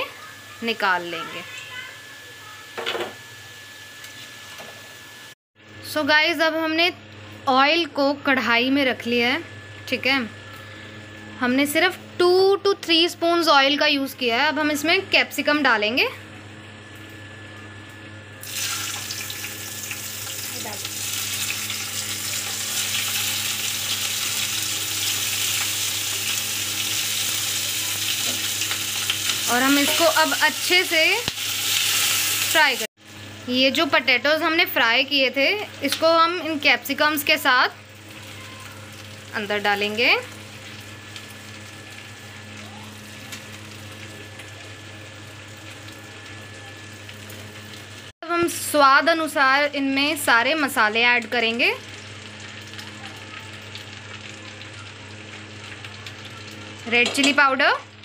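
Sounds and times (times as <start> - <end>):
vegetables sizzling in oil: 18.4 - 58.0.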